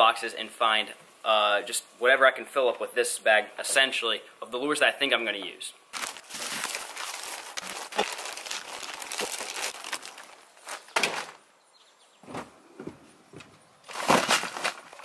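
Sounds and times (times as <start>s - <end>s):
plastic bag rustling: 5.9s - 11.4s, 13.8s - 15.0s.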